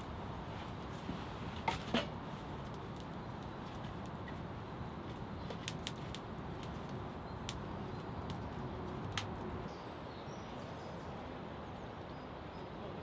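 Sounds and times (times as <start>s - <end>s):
wood fire crackling and popping: 0.0s - 9.7s
outdoor background: 0.0s - 13.0s.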